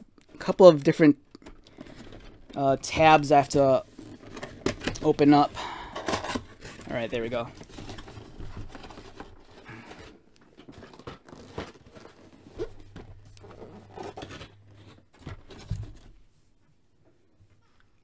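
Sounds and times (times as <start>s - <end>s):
cardboard box scraping and rustling: 6.0s - 16.2s.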